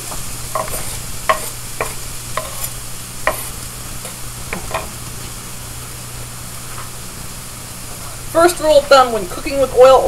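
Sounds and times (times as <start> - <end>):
hot oil popping: 0.0 - 8.0
onions sizzling in oil: 0.0 - 10.0.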